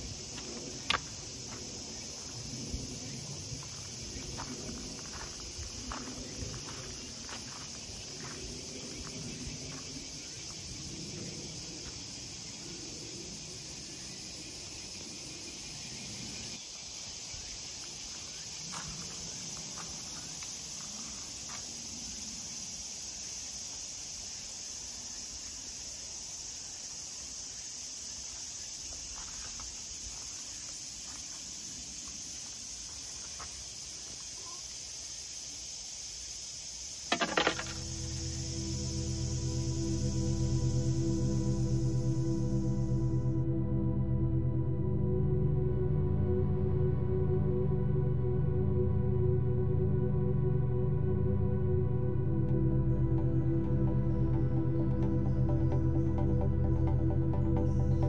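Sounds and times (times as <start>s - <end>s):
high-pitched insect chorus: 0.0s - 58.0s
footsteps on gravel: 0.3s - 2.5s, 3.5s - 10.0s, 18.1s - 21.7s, 28.9s - 34.4s.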